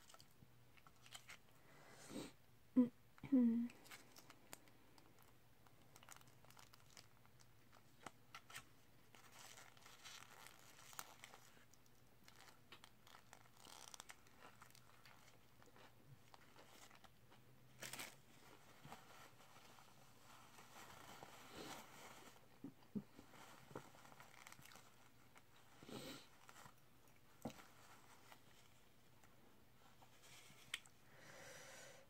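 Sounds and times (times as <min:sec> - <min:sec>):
paper wrapper crinkling: 0:00.0 - 0:01.5, 0:03.8 - 0:30.9.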